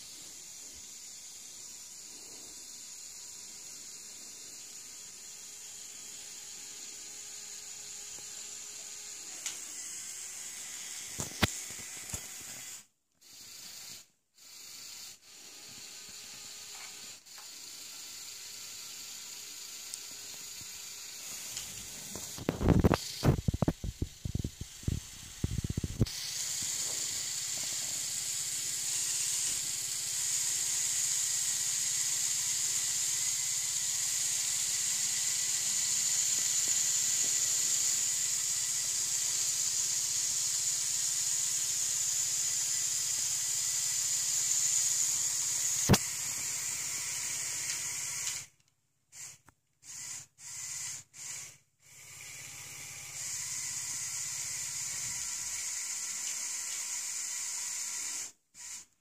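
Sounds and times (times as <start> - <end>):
toy motor whirring: 0.0 - 59.0
sharp click: 45.8 - 46.0.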